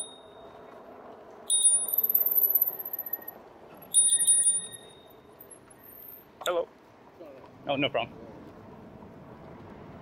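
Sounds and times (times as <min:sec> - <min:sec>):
bicycle bell dinging: 0:00.0 - 0:00.6, 0:01.5 - 0:06.2.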